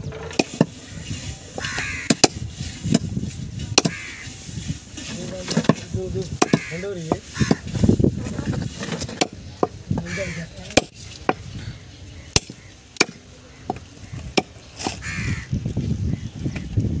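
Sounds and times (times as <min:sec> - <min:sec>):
harsh calls in background: 0:00.3 - 0:03.0, 0:03.6 - 0:08.8, 0:09.4 - 0:15.5
cleaver chopping on wooden block: 0:12.3 - 0:14.5.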